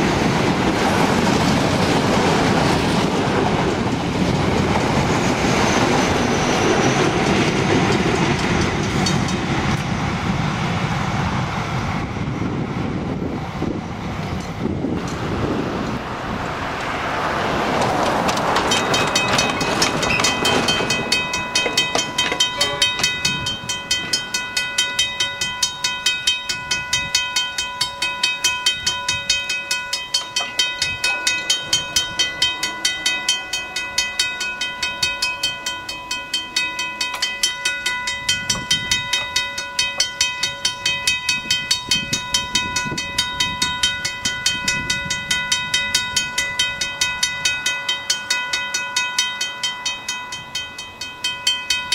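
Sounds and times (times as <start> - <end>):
rushing noise: 0.0 - 24.4
level crossing bells ringing: 18.3 - 51.9.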